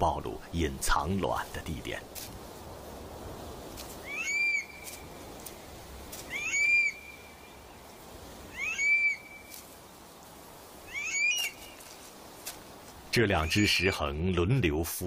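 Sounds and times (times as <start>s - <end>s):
bird whistled calls: 4.0s - 5.0s, 6.3s - 7.6s, 8.5s - 9.6s, 10.9s - 11.9s.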